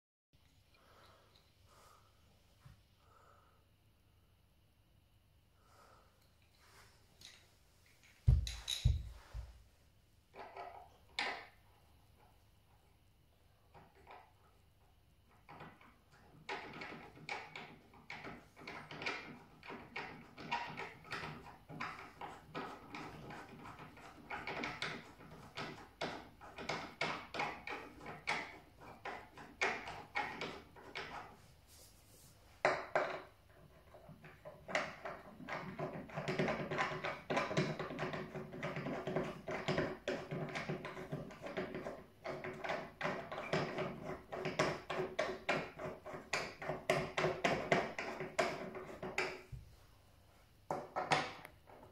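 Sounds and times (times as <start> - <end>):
plastic threads clicking and scraping: 15.3 - 31.4, 32.6 - 49.5.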